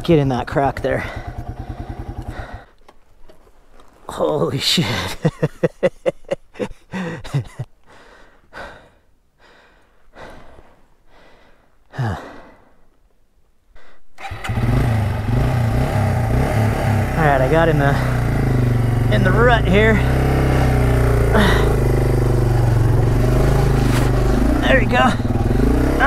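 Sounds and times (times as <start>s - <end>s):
motorcycle engine chugging: 0.0s - 2.7s, 14.2s - 26.0s
person breathing: 1.0s - 2.8s, 6.9s - 13.0s, 13.7s - 14.1s, 21.3s - 21.9s, 25.2s - 26.0s.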